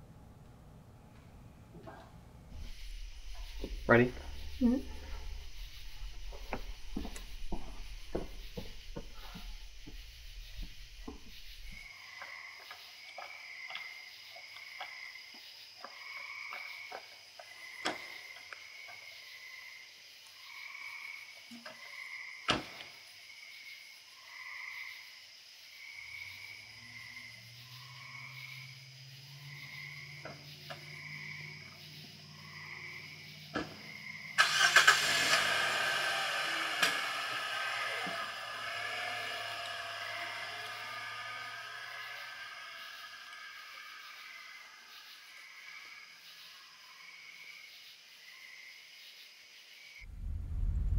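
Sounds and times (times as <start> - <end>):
low steady hum: 0.0 - 11.9, 50.0 - 50.9
car engine starting and running: 2.3 - 11.8, 33.4 - 43.4, 50.0 - 50.9
insects chirping: 2.4 - 50.1.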